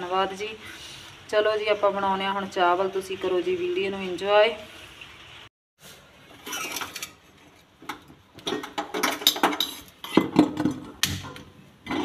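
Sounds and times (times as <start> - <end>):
metal pan clanking: 8.4 - 12.0.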